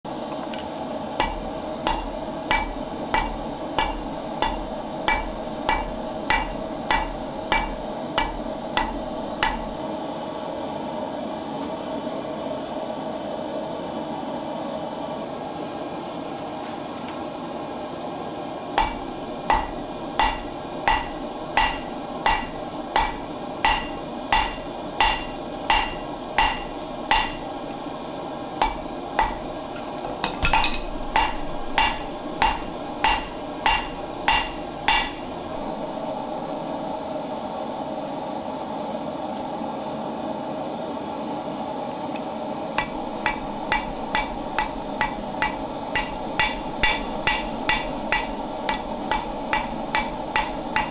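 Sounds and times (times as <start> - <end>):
gas forge burner hissing: 0.1 - 50.9
hammer blows on anvil: 1.2 - 9.8, 18.8 - 27.8, 28.6 - 29.6, 30.2 - 35.8, 42.8 - 50.9.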